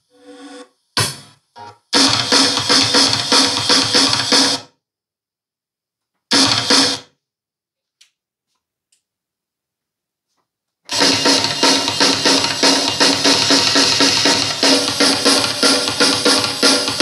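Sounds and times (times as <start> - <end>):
rock music through speakers: 1.0 - 1.3, 2.0 - 4.6, 6.3 - 7.0, 10.9 - 17.0.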